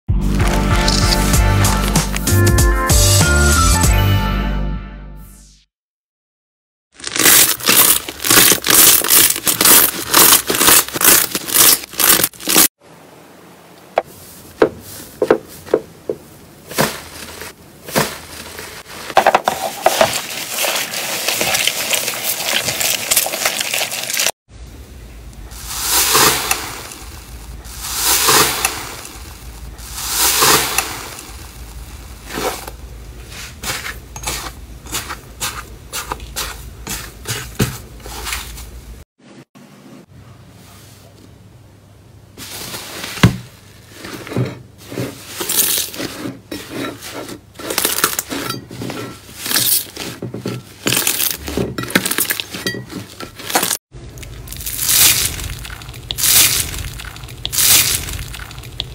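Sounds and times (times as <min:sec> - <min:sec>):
slime stretching and tearing: 0:00.3 - 0:02.3, 0:07.0 - 0:12.7, 0:19.9 - 0:24.4, 0:25.6 - 0:32.8, 0:50.8 - 0:52.6, 0:53.4 - 0:58.9
slime crackling and popping: 0:07.0 - 0:12.7, 0:20.1 - 0:24.4, 0:25.6 - 0:32.8, 0:53.5 - 0:58.9
slime squishing in a bowl: 0:16.7 - 0:24.3, 0:25.5 - 0:38.7, 0:44.8 - 0:58.9.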